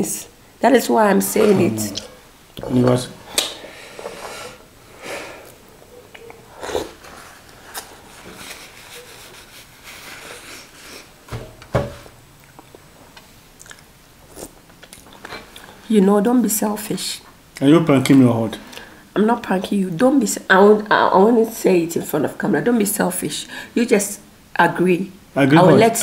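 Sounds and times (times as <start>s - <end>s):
sniffling: 1.3s - 2.2s, 3.2s - 5.6s
chewing: 5.5s - 8.0s, 12.4s - 15.7s
tissue wiped across face: 7.0s - 11.2s.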